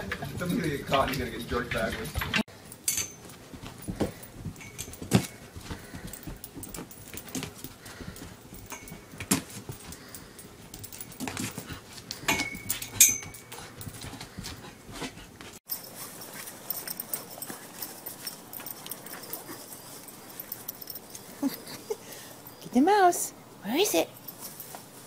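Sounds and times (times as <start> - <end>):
dog paws clicking on floor: 0.0 - 22.0
leash knocking against stool: 0.9 - 10.0.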